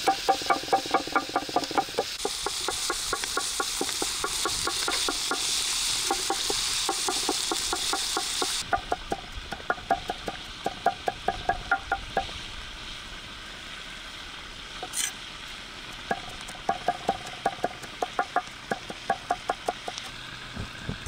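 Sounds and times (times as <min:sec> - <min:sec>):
metal spatula knocking on pan: 0:00.0 - 0:05.4, 0:06.2 - 0:12.3, 0:16.1 - 0:20.0
meat and onions sizzling in a pan: 0:00.0 - 0:21.0.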